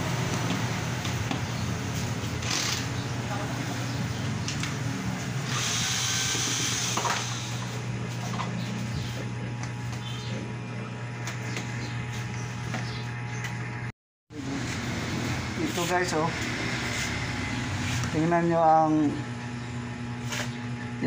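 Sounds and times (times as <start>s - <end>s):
cordless drill running: 2.4s - 2.9s, 5.4s - 7.7s.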